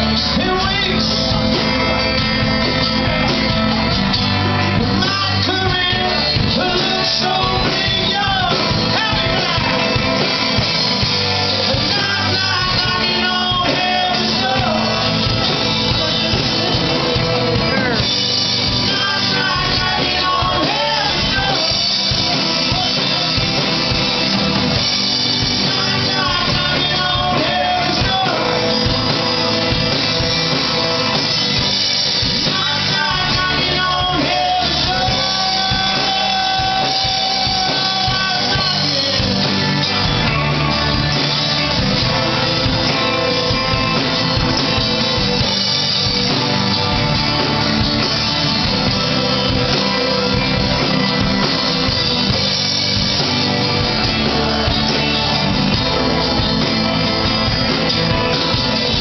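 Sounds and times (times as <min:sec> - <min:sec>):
bass guitar: 0:00.0 - 0:59.0
electric guitar: 0:00.0 - 0:59.0
person singing long notes: 0:11.6 - 0:23.5, 0:32.4 - 0:40.4.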